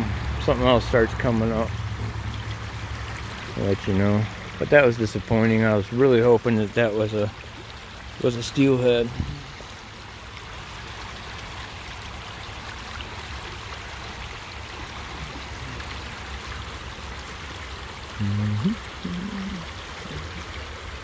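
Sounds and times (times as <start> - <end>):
creek water flowing: 0.0 - 21.0
man humming in a low voice: 18.2 - 20.6.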